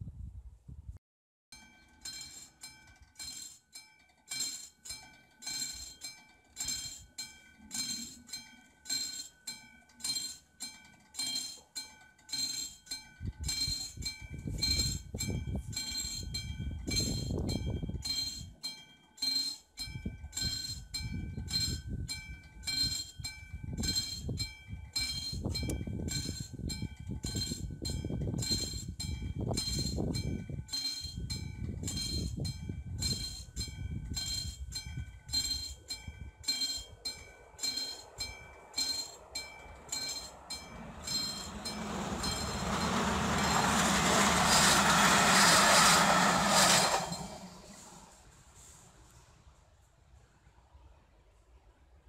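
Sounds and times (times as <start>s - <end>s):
level crossing bell ringing: 35.3s - 44.4s
low rumble: 40.5s - 48.5s.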